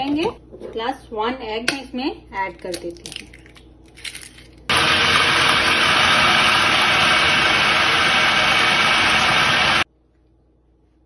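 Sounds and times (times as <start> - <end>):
electric food chopper running: 4.7 - 9.9.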